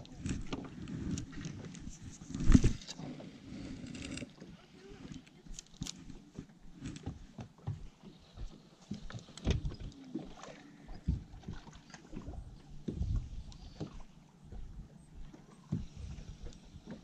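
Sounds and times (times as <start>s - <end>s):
waves slapping boat hull: 4.4s - 17.0s.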